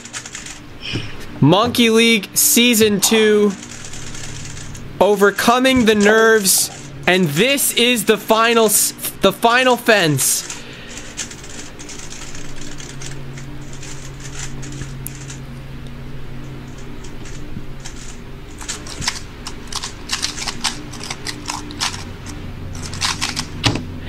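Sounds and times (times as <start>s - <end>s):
puzzle cube clicking rapidly: 0.0s - 0.6s, 3.5s - 4.8s, 10.4s - 15.4s, 17.1s - 23.7s
steady low hum: 0.0s - 24.0s.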